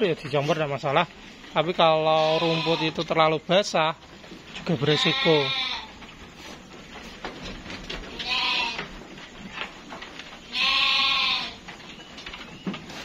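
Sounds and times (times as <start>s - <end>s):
sheep bleating: 2.0s - 3.1s, 4.8s - 5.9s, 8.1s - 8.9s, 10.5s - 11.6s
faint clicking and rustling: 5.9s - 13.0s.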